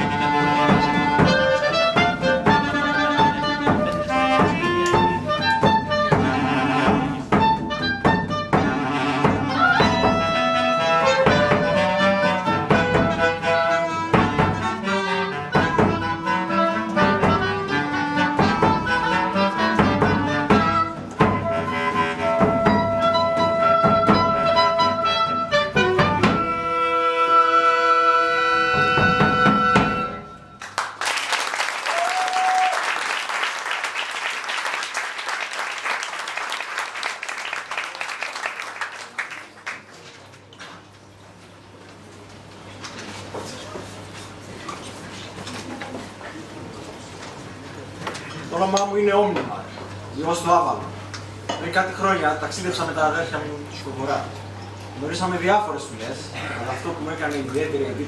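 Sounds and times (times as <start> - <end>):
clarinet ensemble with drums: 0.0 - 30.7
audience applause: 30.6 - 40.5.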